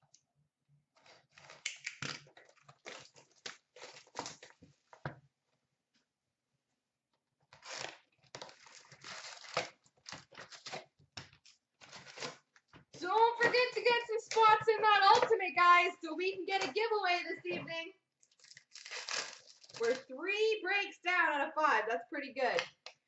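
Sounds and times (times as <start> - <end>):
packaging tearing and crinkling: 1.1 - 4.6, 7.5 - 12.6, 18.2 - 20.0.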